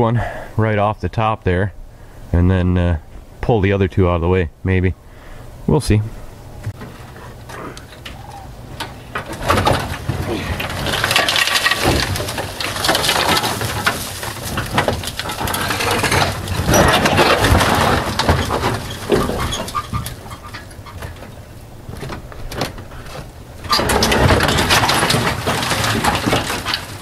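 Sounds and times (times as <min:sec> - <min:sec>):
metal culvert scraping and clattering: 0:06.7 - 0:27.0.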